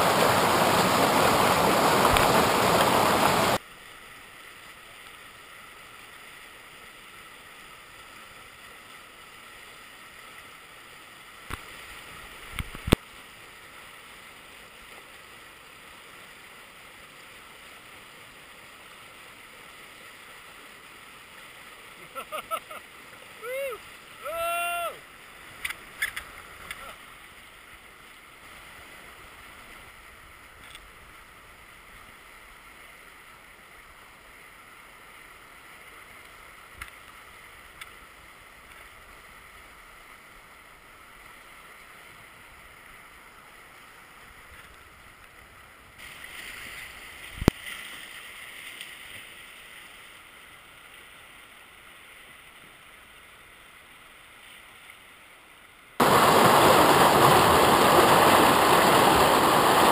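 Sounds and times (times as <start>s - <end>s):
river rapids rushing: 0.0s - 3.6s, 21.9s - 27.2s, 56.0s - 59.9s.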